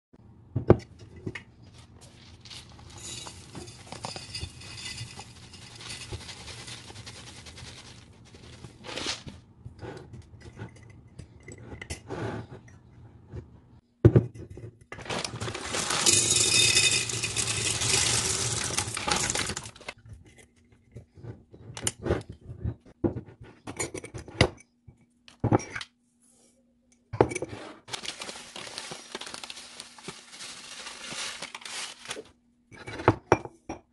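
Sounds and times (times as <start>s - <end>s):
dry food pouring into jar: 2.5s - 9.0s, 15.0s - 19.9s, 27.9s - 32.0s
glass jars clinking: 2.8s - 6.2s, 15.5s - 19.7s.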